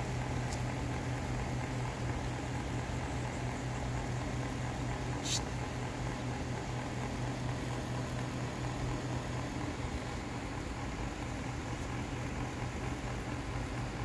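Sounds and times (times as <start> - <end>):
low machine hum: 0.0 - 14.0
even hiss: 5.1 - 5.6
brief high hiss: 5.2 - 5.5.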